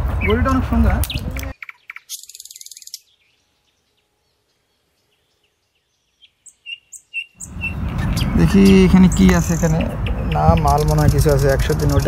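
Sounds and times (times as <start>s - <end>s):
loud outdoor noise: 0.0s - 1.6s, 7.4s - 12.0s
bird chirping: 0.0s - 12.0s.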